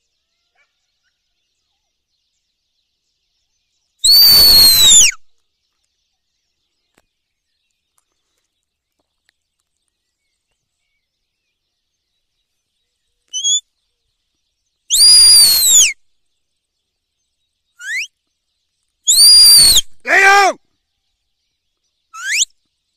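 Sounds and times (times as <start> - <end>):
short rising chirps: 4.0 - 5.1, 14.9 - 15.9
whistled call sliding down: 4.0 - 5.2, 13.3 - 13.6, 14.9 - 16.0, 17.8 - 18.1, 19.1 - 20.5, 22.2 - 22.5.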